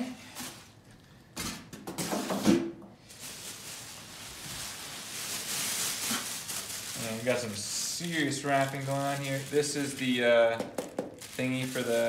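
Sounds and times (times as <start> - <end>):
plastic wrap rustling: 3.0 - 12.0.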